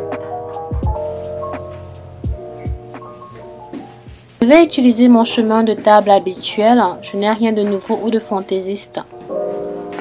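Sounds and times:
instrumental music with held notes: 0.0 - 10.0
soft low drum beats: 0.7 - 3.1.

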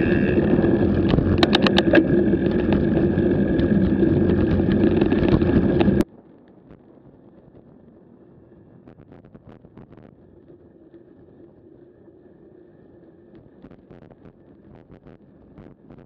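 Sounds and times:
wind rush: 0.0 - 6.0
gravel ticks: 0.0 - 7.8
bicycle tyres on gravel: 0.0 - 8.8.

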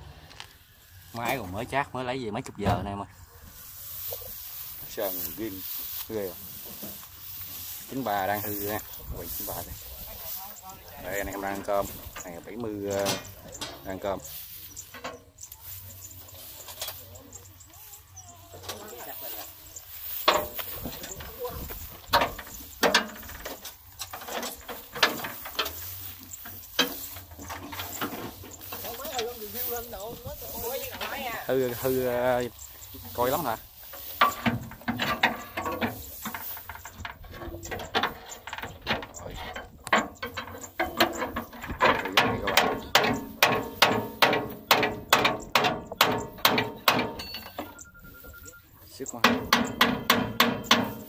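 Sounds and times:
metal knocks and clicks: 11.0 - 14.2, 20.2 - 29.9, 33.9 - 47.8, 49.1 - 51.0
steel pipe hammering metal: 42.2 - 47.8, 49.2 - 51.0.

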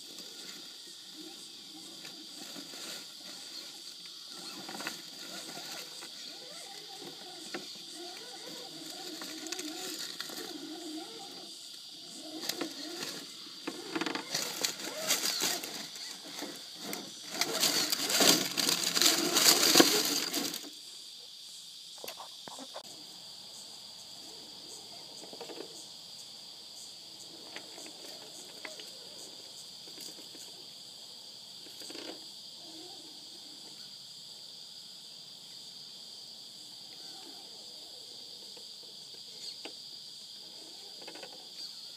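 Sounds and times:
high-pitched insect chorus: 0.0 - 41.9
loud rustling and knocking: 12.4 - 20.7.

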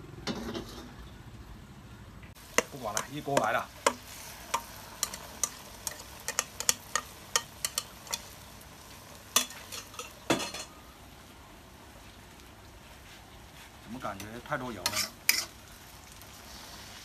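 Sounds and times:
paste sizzling in hot oil: 2.4 - 10.6, 12.9 - 17.0.

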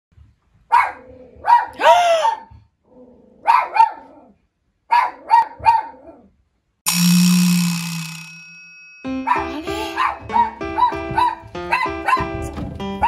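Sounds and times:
dog barking: 0.7 - 2.5, 3.4 - 6.3, 9.3 - 12.4.

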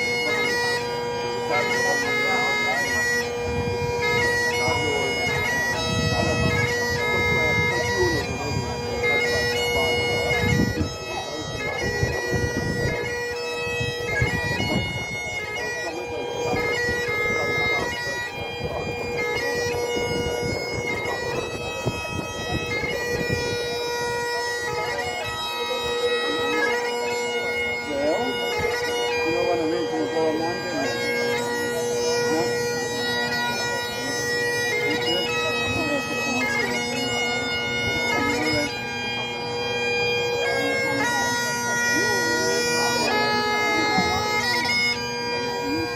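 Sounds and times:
bagpipe playing slow melody: 0.0 - 45.9.

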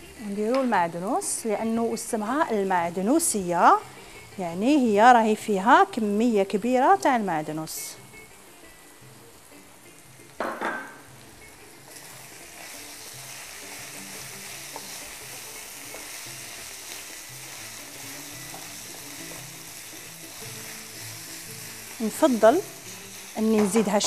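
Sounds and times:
meat sizzling in a frying pan: 11.0 - 24.0.

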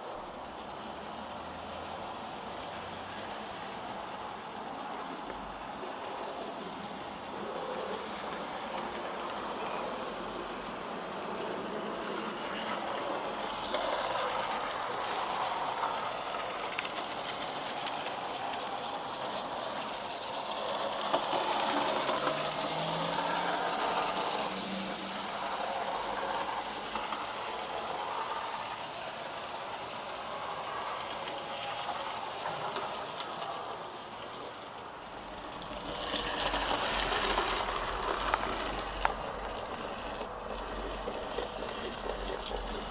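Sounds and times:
wheels clicking over rail joints: 0.4 - 42.9
model train motor whirring: 0.6 - 42.9.

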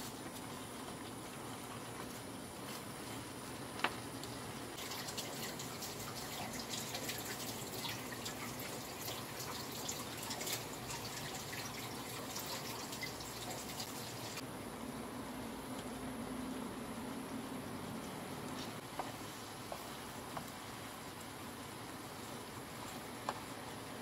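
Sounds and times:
sauce bubbling in a pan: 4.4 - 14.4, 18.8 - 24.0.

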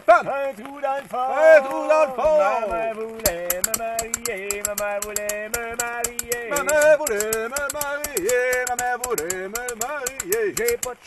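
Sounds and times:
sharp high percussion clicks: 2.8 - 11.0.

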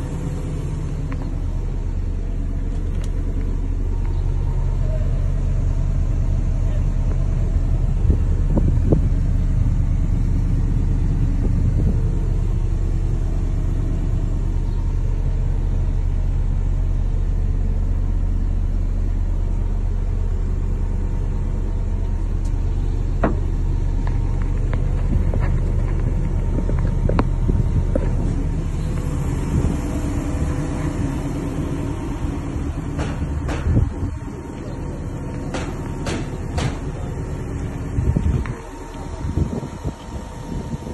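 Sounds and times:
diesel engine idling: 0.0 - 40.9.

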